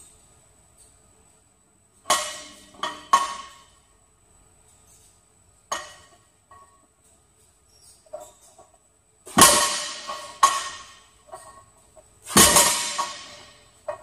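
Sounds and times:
loaded barbell clanking: 0:12.3 - 0:14.0.

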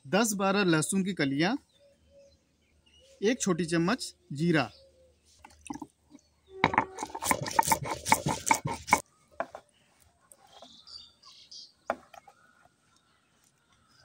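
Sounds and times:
faint bird chirps: 0:01.3 - 0:03.5, 0:09.0 - 0:14.0
stone grinding slab rubbing: 0:06.6 - 0:09.6.

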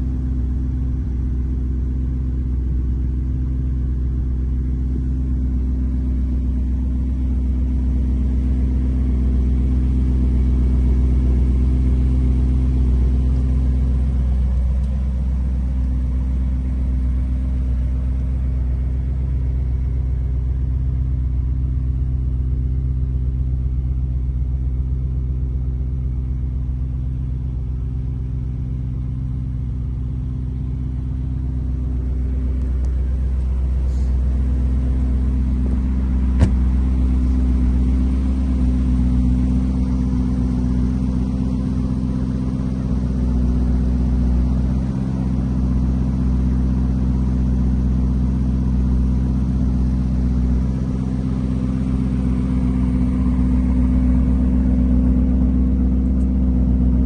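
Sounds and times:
car engine idling: 0:00.0 - 0:57.0
sharp knock: 0:36.4 - 0:36.7.

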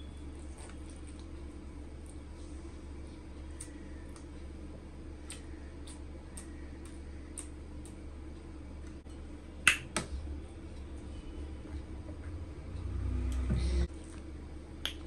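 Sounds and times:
close-up chewing: 0:00.4 - 0:02.2.

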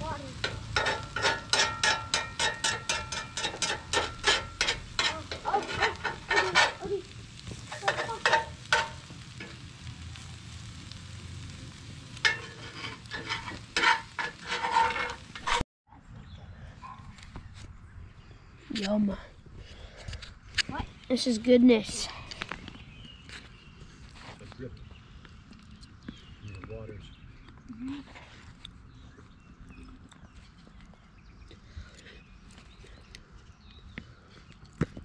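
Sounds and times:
utensil scraping metal pot: 0:00.4 - 0:07.0, 0:07.6 - 0:09.7, 0:12.2 - 0:15.6.

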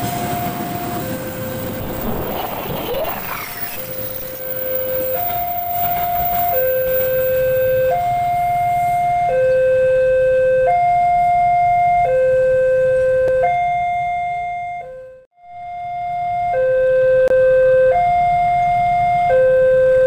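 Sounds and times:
low rumble: 0:01.2 - 0:05.1
two-tone electronic alarm: 0:02.8 - 0:20.0.

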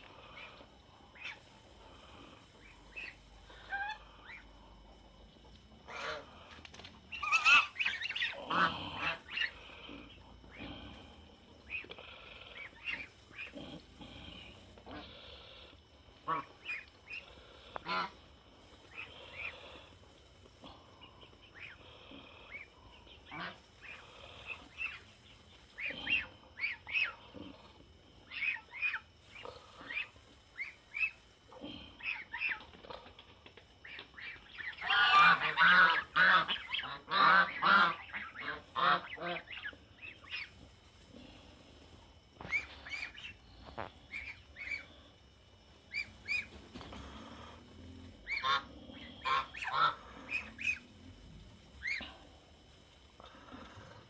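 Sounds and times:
geese honking: 0:05.9 - 0:09.9, 0:16.2 - 0:18.2, 0:23.2 - 0:25.1, 0:28.3 - 0:31.2, 0:33.8 - 0:40.6, 0:42.4 - 0:44.9, 0:45.9 - 0:47.6, 0:48.2 - 0:50.9, 0:51.8 - 0:52.1.

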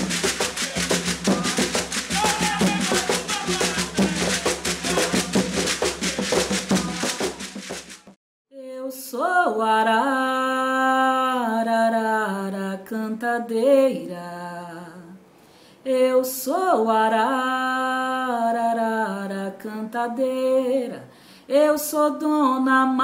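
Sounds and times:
solo voice singing a slow chant: 0:00.7 - 0:06.2.

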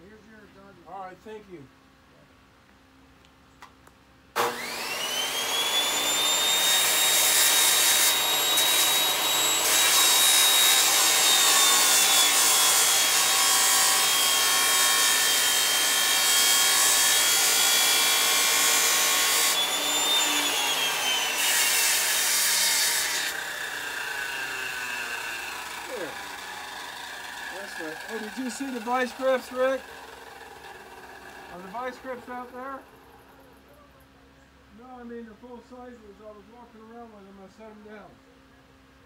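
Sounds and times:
bench grinder whine: 0:04.4 - 0:33.4.

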